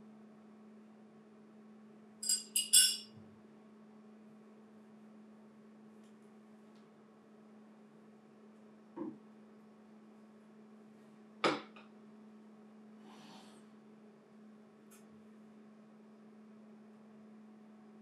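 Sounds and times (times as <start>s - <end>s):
glass clacking onto plate: 2.2s - 3.1s.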